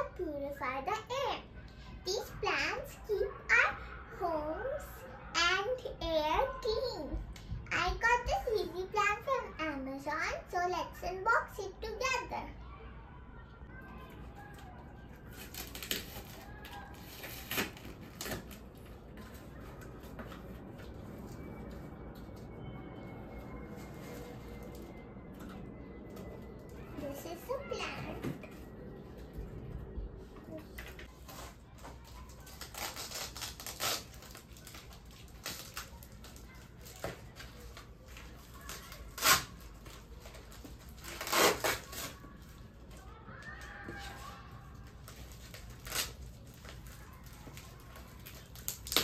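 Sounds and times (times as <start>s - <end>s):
paper crackle: 13.9s - 29.6s, 30.4s - 49.0s
paper and cardboard rustling: 30.4s - 49.0s.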